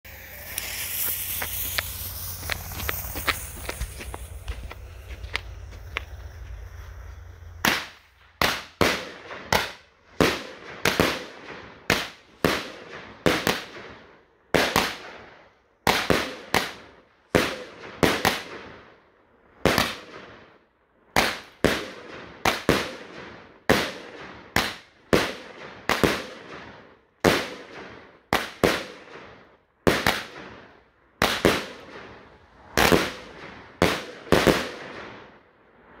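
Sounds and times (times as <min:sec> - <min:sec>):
firework shells bursting: 0:00.1 - 0:11.1.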